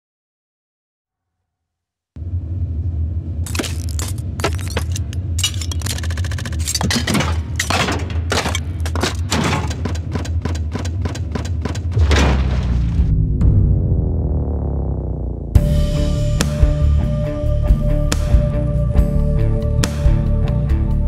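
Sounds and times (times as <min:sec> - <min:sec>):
glitchy clicks and crackles: 0:03.4 - 0:07.7
low bass drone: 0:12.5 - 0:21.0.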